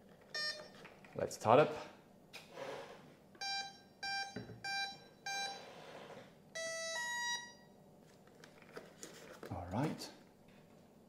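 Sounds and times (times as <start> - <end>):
short electronic beeps: 3.4 - 5.7.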